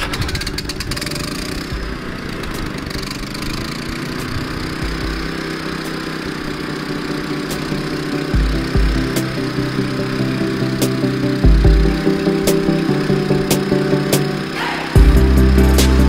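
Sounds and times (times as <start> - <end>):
generator engine running: 0.0 - 16.0.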